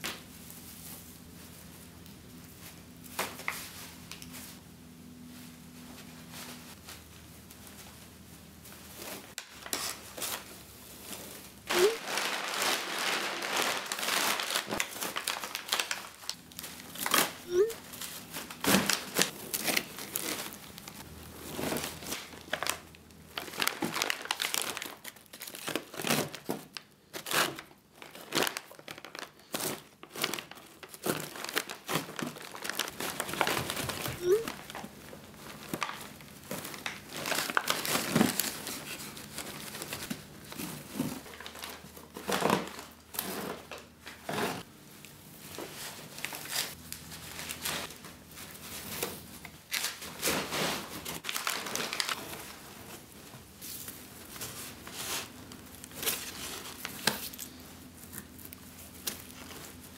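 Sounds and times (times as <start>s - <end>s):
plastic bag crinkling: 8.9s - 43.8s, 45.4s - 59.9s
burlap sack rustling: 10.0s - 22.8s.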